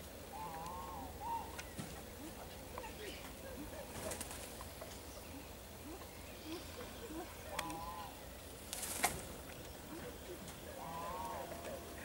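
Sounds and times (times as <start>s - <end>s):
distant voices: 0.0s - 12.0s
brief rustle: 8.7s - 9.4s.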